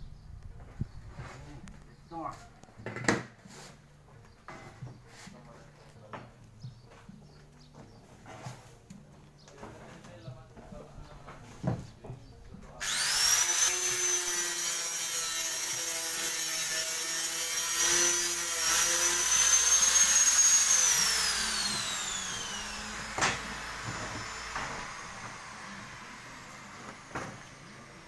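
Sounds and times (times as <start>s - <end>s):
angle grinder whining: 12.8s - 28.0s.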